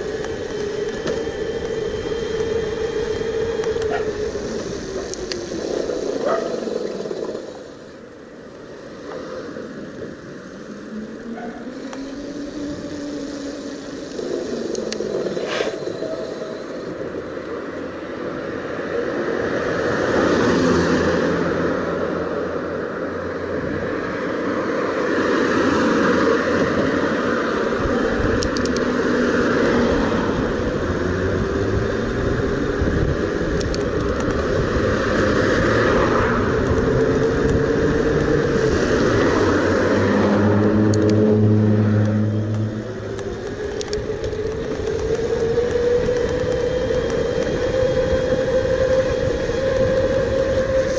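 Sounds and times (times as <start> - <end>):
electric motor humming: 0.0 - 8.0, 10.2 - 17.2
wind and tyre noise: 0.0 - 50.9.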